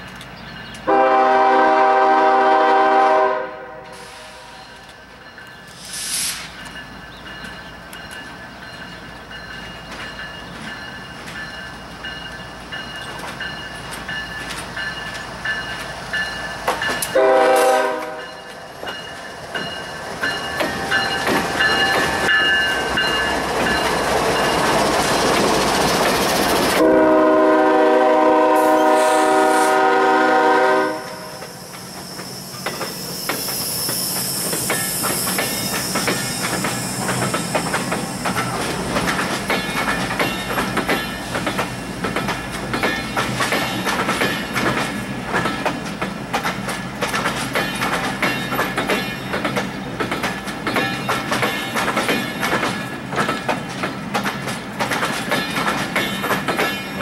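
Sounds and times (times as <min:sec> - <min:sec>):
train wheels on rails: 0:00.0 - 0:57.0
train air horn: 0:00.9 - 0:04.8, 0:17.1 - 0:18.4, 0:26.8 - 0:31.6.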